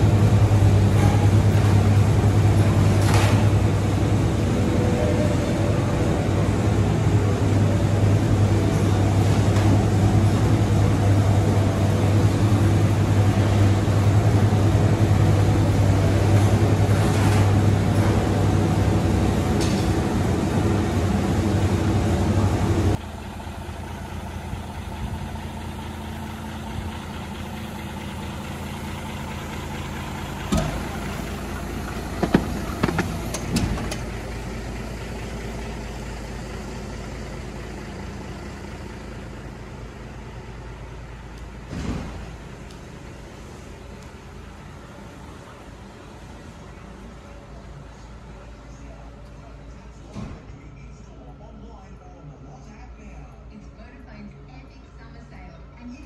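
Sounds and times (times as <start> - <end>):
fan units humming: 0.0 - 56.0
sharp knocks: 32.2 - 33.9.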